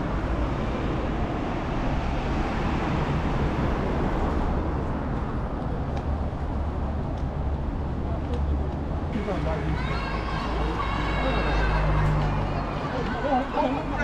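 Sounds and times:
road traffic hiss and rumble: 0:00.0 - 0:14.0.

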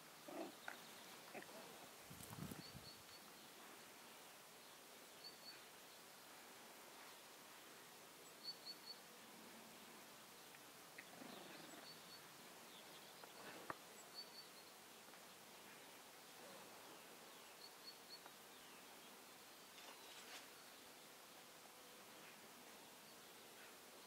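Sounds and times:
small bird chirping: 0:02.1 - 0:03.4.

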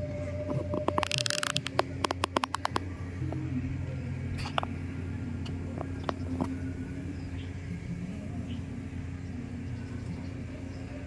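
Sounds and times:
faint low hum: 0:00.0 - 0:11.0
steady low rumble: 0:00.0 - 0:11.0
faint clicks: 0:00.6 - 0:03.4.

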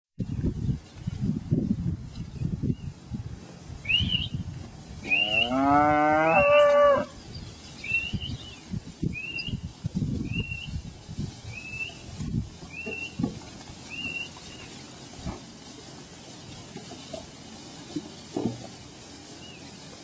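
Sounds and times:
herd moving through grass: 0:00.2 - 0:20.0
calf mooing: 0:05.0 - 0:07.1.

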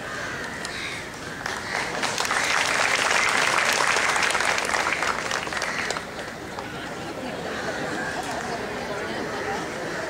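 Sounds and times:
audience applauding: 0:01.4 - 0:06.3.

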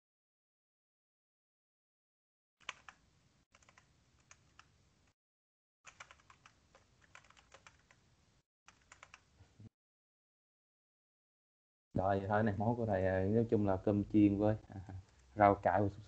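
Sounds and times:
faint keyboard typing: 0:02.6 - 0:05.2, 0:05.9 - 0:08.0, 0:08.7 - 0:09.3.

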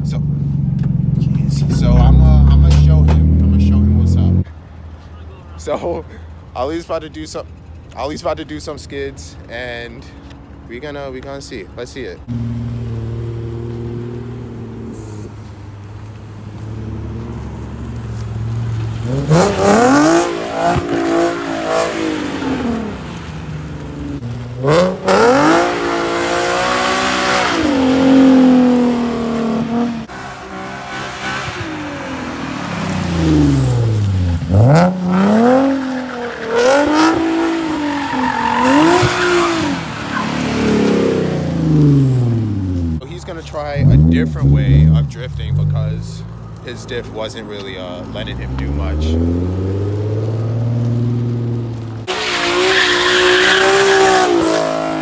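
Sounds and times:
car engine revving: 0:00.0 - 0:04.5, 0:12.2 - 0:55.0
tyres squealing on asphalt: 0:11.8 - 0:55.0.

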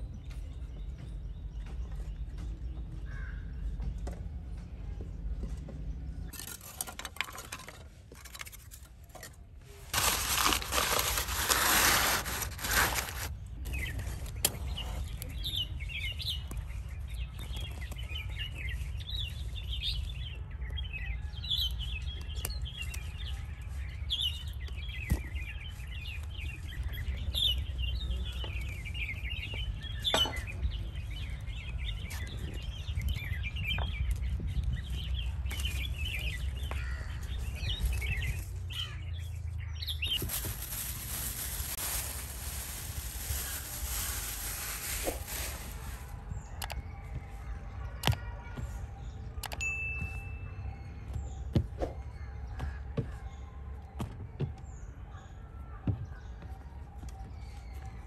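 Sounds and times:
small birds chirping: 0:00.0 - 0:58.0
loud paper rustling: 0:09.8 - 0:13.4, 0:40.0 - 0:46.1.

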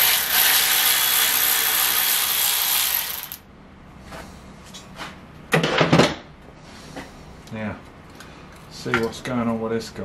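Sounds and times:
powered ratchet running: 0:00.0 - 0:03.4.

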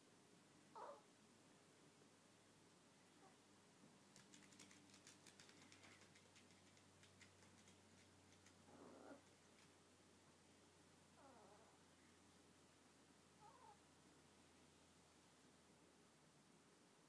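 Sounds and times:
dog claws clicking on floor: 0:04.1 - 0:09.8.

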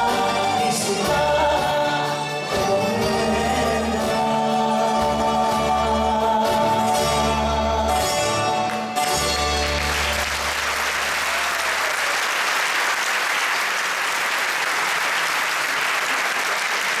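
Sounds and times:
audience applause: 0:08.7 - 0:17.0.

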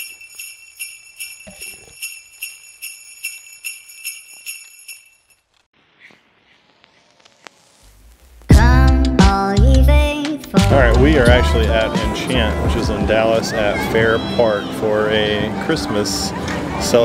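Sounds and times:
sleigh bells jingling: 0:00.0 - 0:05.5, 0:10.8 - 0:12.9.

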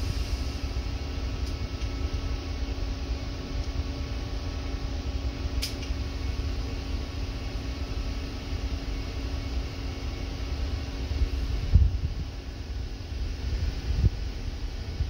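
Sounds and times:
low mechanical drive hum: 0:00.0 - 0:15.0
sharp mechanical click: 0:05.6 - 0:06.0.

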